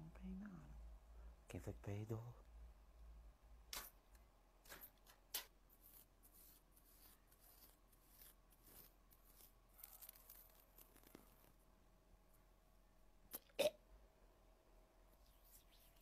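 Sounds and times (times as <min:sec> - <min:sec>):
faint clicks and rustles of hair: 0:03.7 - 0:11.7.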